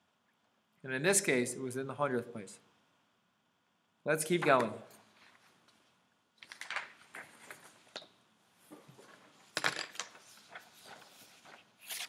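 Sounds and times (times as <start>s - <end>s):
paper rustling on a desk: 6.4s - 8.0s, 8.7s - 12.0s.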